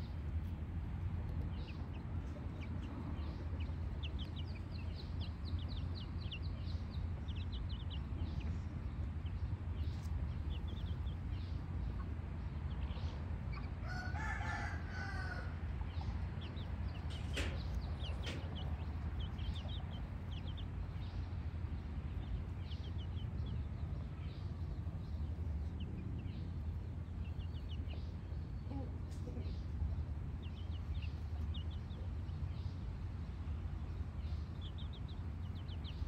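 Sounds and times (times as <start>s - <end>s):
chick peeping: 0.0s - 33.0s, 33.8s - 36.0s
rooster crowing: 13.8s - 15.6s.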